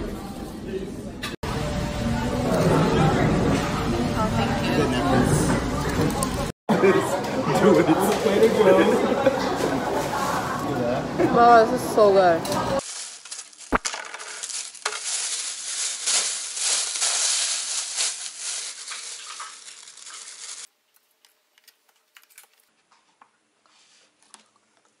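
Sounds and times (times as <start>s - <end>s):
plastic bag crinkling: 12.8s - 20.7s.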